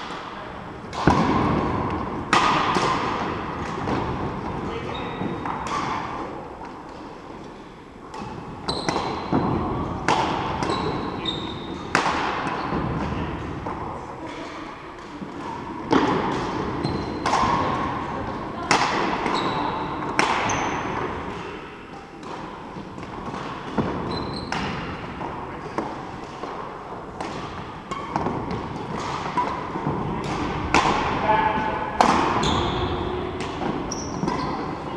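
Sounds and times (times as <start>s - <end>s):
racket hitting shuttlecock: 0.0s - 4.6s, 5.2s - 7.0s, 8.1s - 13.9s, 15.0s - 34.8s
trainers squeaking on wooden floor: 10.6s - 11.8s.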